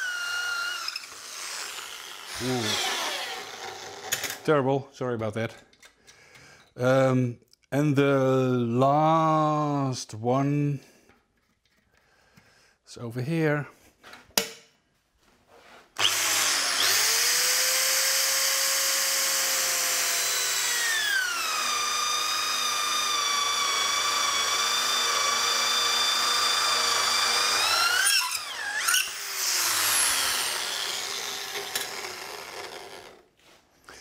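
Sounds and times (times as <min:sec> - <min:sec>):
electric drill boring into wood: 0:00.0 - 0:04.3, 0:16.0 - 0:33.2.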